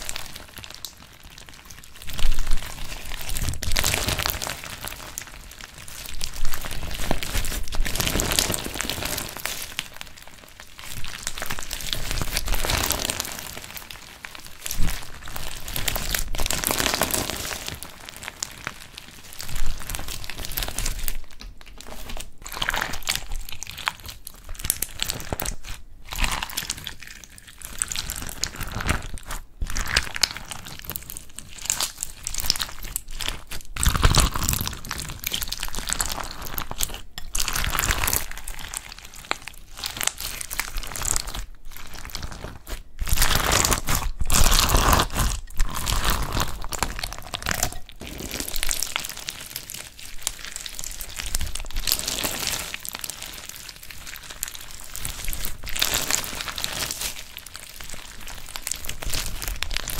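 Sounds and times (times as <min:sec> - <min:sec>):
slime clicking and squelching: 0:00.0 - 0:59.9.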